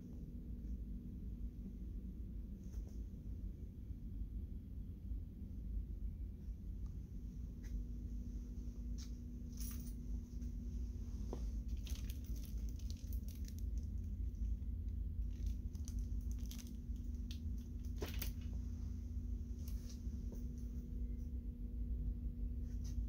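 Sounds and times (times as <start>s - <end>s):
steady low hum: 0.0s - 23.0s
phone handling and walking rumble: 8.8s - 21.4s.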